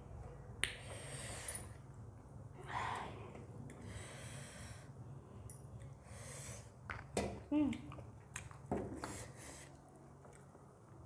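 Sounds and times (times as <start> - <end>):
breathing through nose and mouth: 6.0 - 6.8
soft chewing: 7.8 - 10.8.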